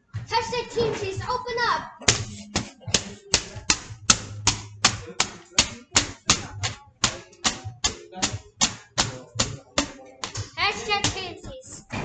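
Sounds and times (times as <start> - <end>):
cardboard tube whacking surface: 2.0 - 11.3.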